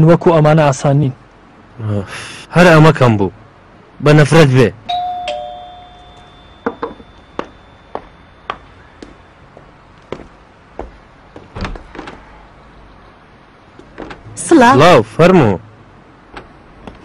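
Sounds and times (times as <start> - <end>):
footsteps on hard floor: 7.4 - 12.2.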